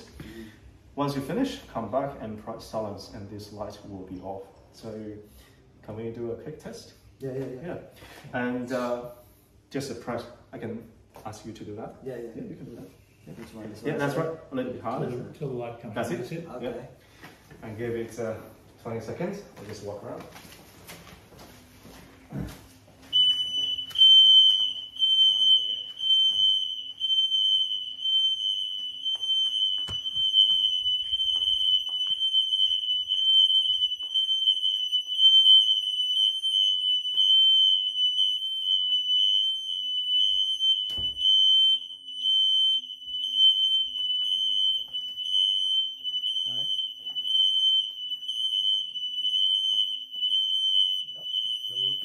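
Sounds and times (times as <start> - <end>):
smoke alarm tone: 21.4 - 52.0.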